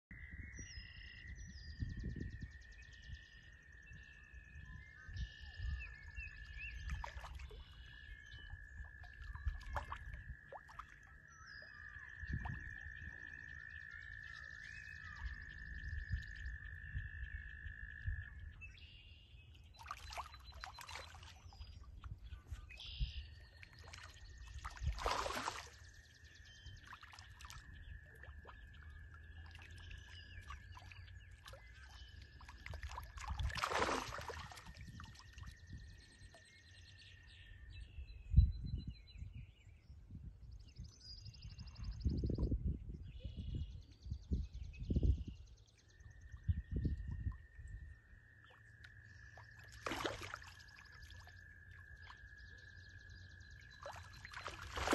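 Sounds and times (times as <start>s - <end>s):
fish splashing in water: 9.0s - 11.0s, 19.8s - 21.6s, 23.6s - 26.0s, 26.8s - 35.5s, 49.4s - 52.2s, 53.6s - 54.9s.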